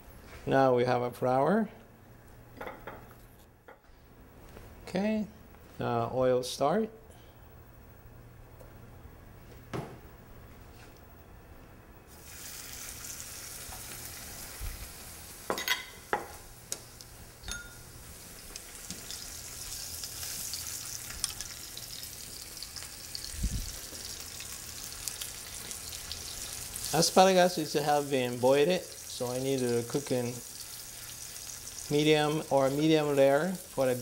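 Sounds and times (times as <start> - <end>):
food sizzling in hot oil: 12.1 - 34.0.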